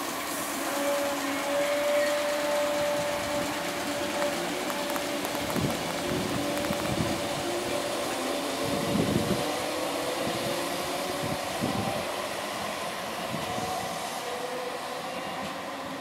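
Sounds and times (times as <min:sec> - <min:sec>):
electric train whine: 0:00.0 - 0:16.0
train running noise: 0:00.0 - 0:16.0
wheels thumping on track: 0:02.4 - 0:07.5.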